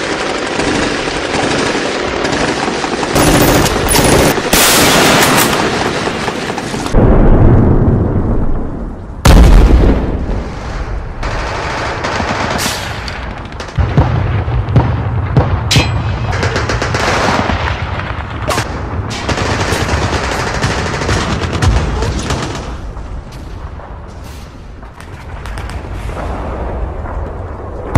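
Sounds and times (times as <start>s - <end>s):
machine-gun fire and gunshots: 0.0s - 7.0s, 11.2s - 22.9s
low rumbling booms: 7.0s - 11.2s.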